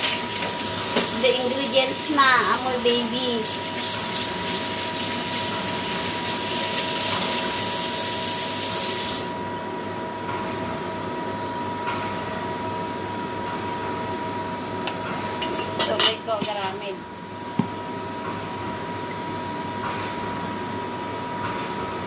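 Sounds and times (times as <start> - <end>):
steady high hum: 0.0 - 6.7, 7.5 - 22.0
tap running water into steel sink: 3.4 - 9.3.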